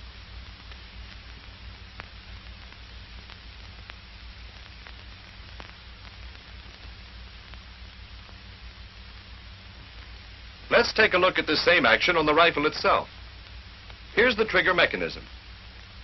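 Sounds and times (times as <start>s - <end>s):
faint crackles: 0.0s - 16.0s
film soundtrack hiss and hum: 0.0s - 16.0s.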